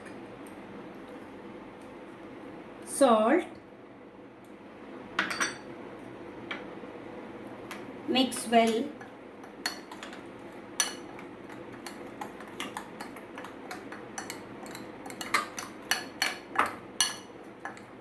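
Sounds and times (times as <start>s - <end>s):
spoon mixing thick paste: 10.8s - 18.0s.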